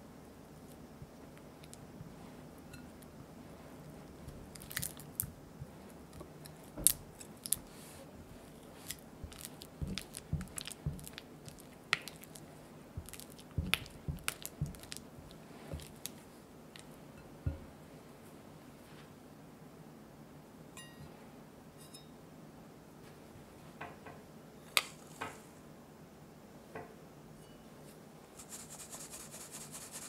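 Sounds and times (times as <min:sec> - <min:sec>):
butter squishing: 0:04.0 - 0:17.0.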